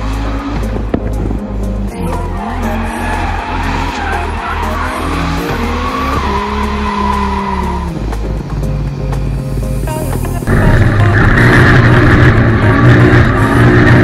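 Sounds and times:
car engine revving: 0:00.0 - 0:09.8, 0:10.4 - 0:14.0
music with heavy bass beat: 0:00.0 - 0:14.0
tyres squealing: 0:02.0 - 0:08.2.

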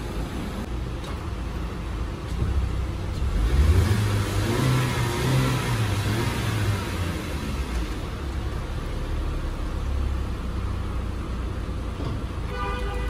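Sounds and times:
car engine revving: 0:02.1 - 0:11.6.

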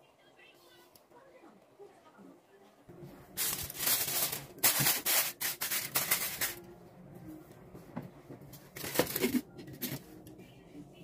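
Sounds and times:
aluminium foil crinkling: 0:03.4 - 0:06.6, 0:08.8 - 0:10.0.

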